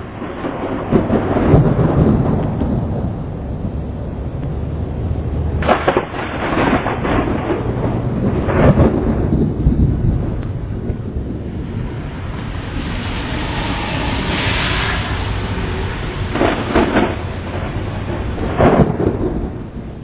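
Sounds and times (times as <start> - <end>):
low rumble of thunder: 0.0 - 20.0
storm wind: 0.0 - 20.0
wind buffeting microphone: 0.0 - 20.0
car tyres hissing on wet road: 11.5 - 19.0.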